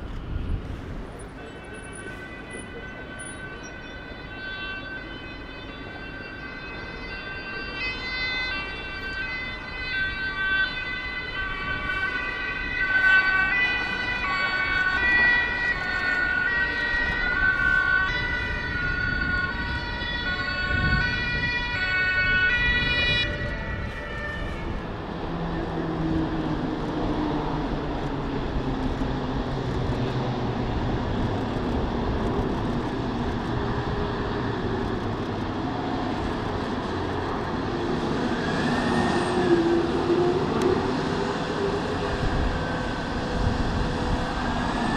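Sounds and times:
two-tone emergency siren: 0.1 - 44.9
fire truck engine driving: 5.6 - 44.9.

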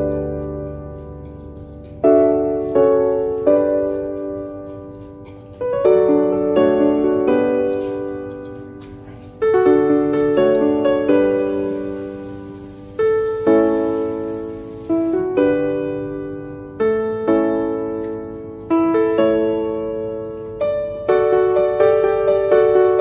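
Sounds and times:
slow piano chords: 0.0 - 23.0.

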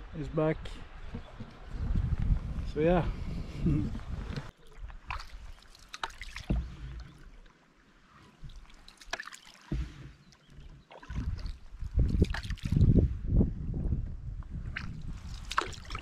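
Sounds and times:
wind rumbling on microphone: 0.0 - 5.5, 11.0 - 16.0
paddle splashing in water: 4.1 - 13.0, 14.6 - 16.0
water dripping: 4.5 - 7.5.

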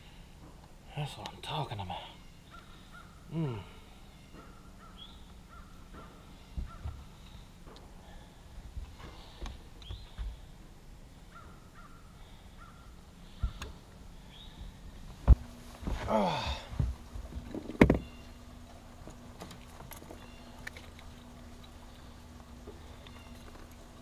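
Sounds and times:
faint bird calls: 2.0 - 8.4, 9.0 - 14.9, 17.7 - 18.6, 20.0 - 23.9.

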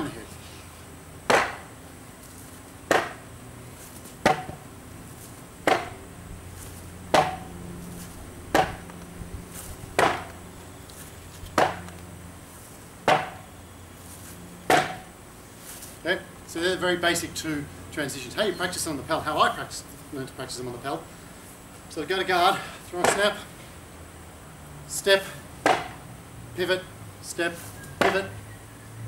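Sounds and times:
sword thudding on padding: 1.3 - 1.7, 2.9 - 3.2, 4.2 - 4.6, 5.6 - 6.0, 7.1 - 7.5, 8.5 - 8.8, 10.0 - 10.3, 11.6 - 11.9, 13.1 - 13.4, 14.7 - 15.1, 25.6 - 26.0, 28.0 - 28.2.

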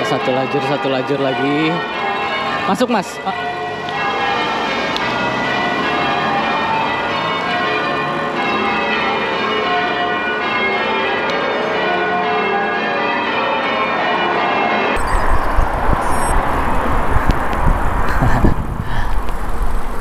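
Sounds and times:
church bells change ringing: 0.0 - 17.7.

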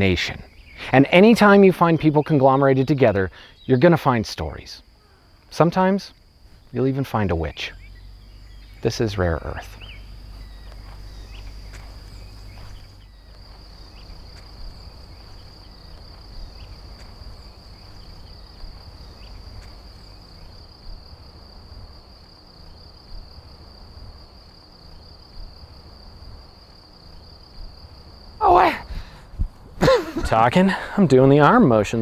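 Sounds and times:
crickets chirping: 0.0 - 32.0
low rumble: 7.7 - 21.9
faint ticks: 10.0 - 21.0.

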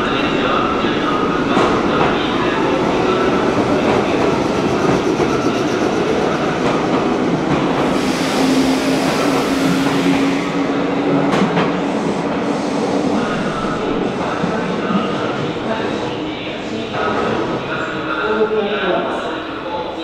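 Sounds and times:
electric train rumbling: 0.0 - 20.0
hiss: 7.8 - 10.6.

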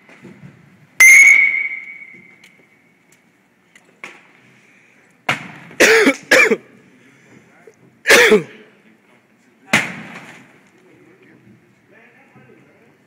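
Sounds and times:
bat striking ball: 1.0 - 2.4
bat ringing: 1.0 - 2.9.

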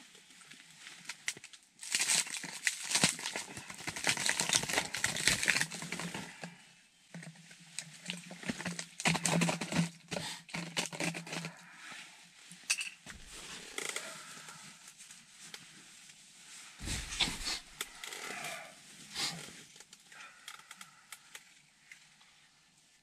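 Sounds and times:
plastic bottle crinkling: 1.2 - 6.5, 7.2 - 11.8, 13.1 - 14.8, 16.8 - 18.6.

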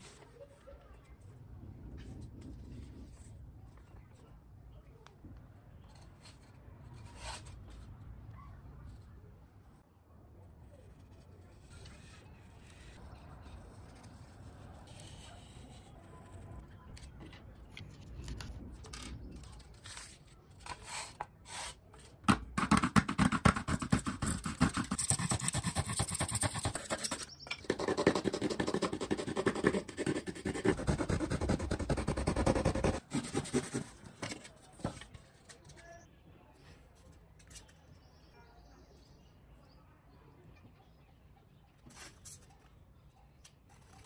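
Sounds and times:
marker scratching on foam: 10.9 - 16.6, 22.8 - 34.1
hacksaw rasping through foam: 22.7 - 34.0.

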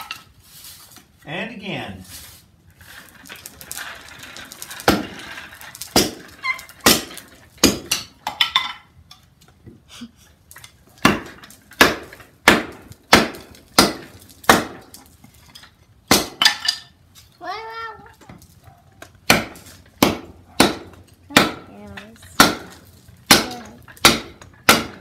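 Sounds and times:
axe splitting wood on block: 4.8 - 8.4, 11.0 - 15.0, 16.1 - 16.7, 19.0 - 21.8, 22.4 - 25.0.

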